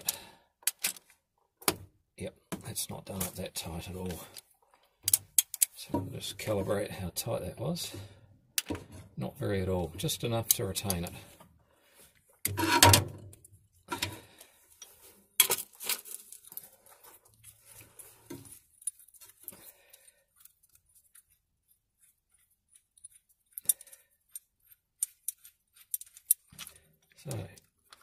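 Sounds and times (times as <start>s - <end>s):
metal bolt clicks and clinks: 5.1s - 5.8s, 22.7s - 28.0s.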